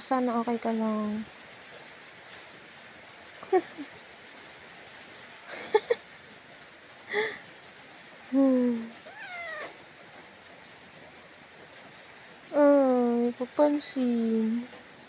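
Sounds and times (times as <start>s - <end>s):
cat meowing: 9.0s - 9.8s.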